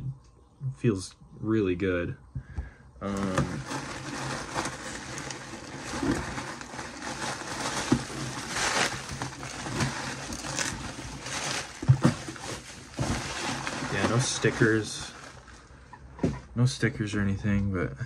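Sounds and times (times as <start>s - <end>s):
plastic bag crinkling: 3.0s - 16.0s.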